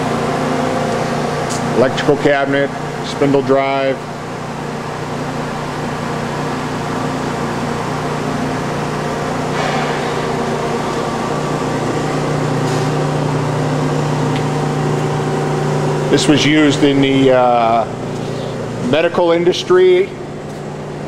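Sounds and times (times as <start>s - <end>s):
electrical and mechanical hum: 0.0s - 21.0s.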